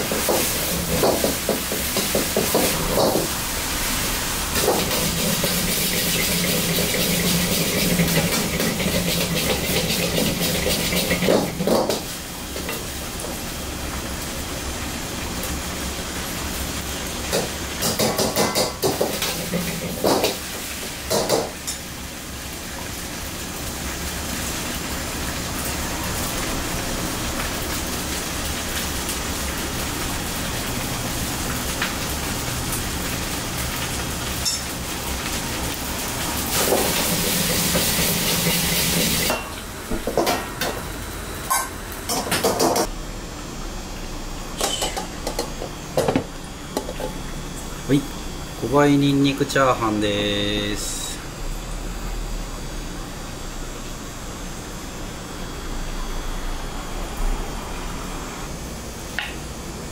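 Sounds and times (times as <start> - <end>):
rice sizzling: 0.0 - 55.9
gas burner roaring: 0.0 - 59.9.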